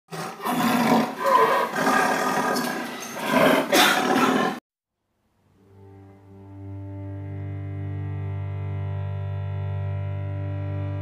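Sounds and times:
low sustained music chord: 5.6 - 11.0.

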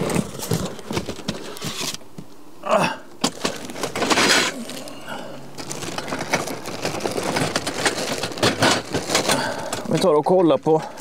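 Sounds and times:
plastic wrapping crinkling: 3.2 - 11.0.

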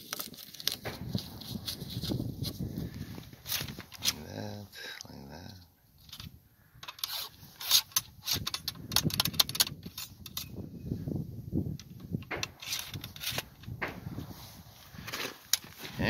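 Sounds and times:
handling rubs: 0.0 - 4.4
ramrod clicking and scraping in barrel: 3.4 - 4.3, 5.5 - 10.6, 11.7 - 14.0.

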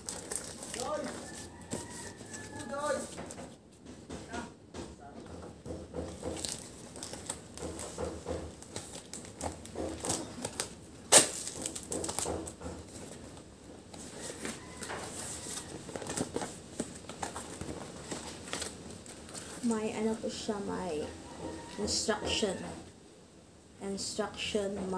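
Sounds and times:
cardboard box taps and rustles: 5.6 - 10.7.

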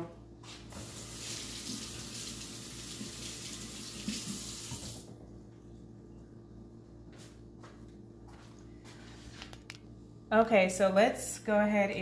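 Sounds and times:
tap running over washing hands: 0.7 - 5.1.

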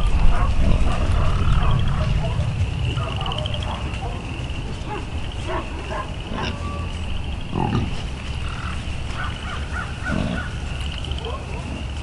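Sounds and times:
frogs trilling chorus: 0.0 - 12.0
low steady rumble: 0.0 - 12.0
short frog calls: 6.2 - 11.4.

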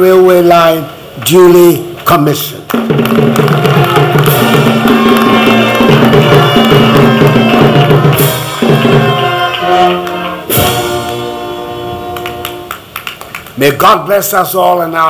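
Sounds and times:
band music with drums: 2.6 - 13.0
cymbal crash: 2.8 - 9.4, 10.4 - 12.7.

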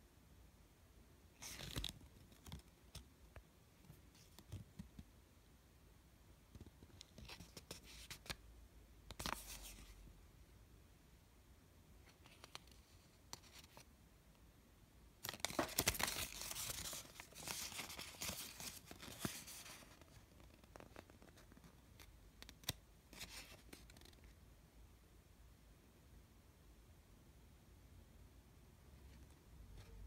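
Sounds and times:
paper crinkling and rustling: 1.4 - 3.1, 15.2 - 24.2.

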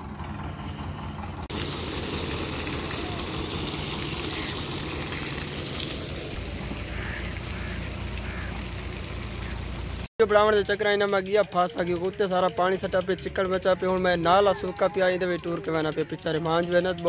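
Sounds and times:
water gushing onto dirt road: 1.4 - 10.1.

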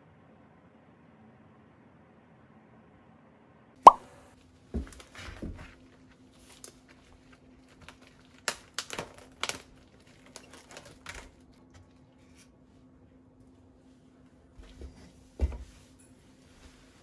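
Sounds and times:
plastic wrap crackling: 6.3 - 11.5.

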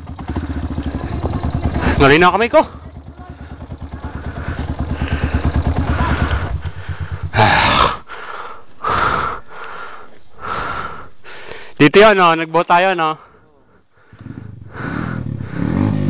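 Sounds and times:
dirt bike engine running: 0.0 - 11.1, 14.0 - 16.0
heavy breathing: 3.3 - 11.8, 13.2 - 16.0.

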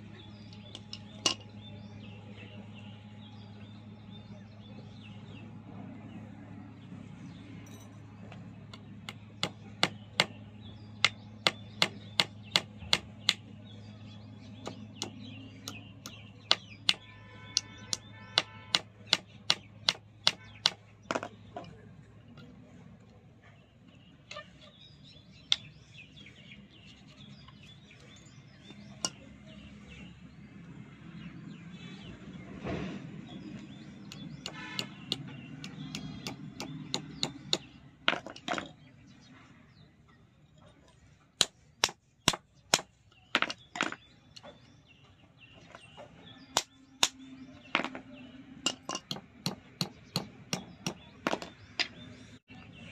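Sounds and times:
hammer tapping nails into wood: 11.0 - 13.4, 14.6 - 21.3, 34.1 - 38.5.

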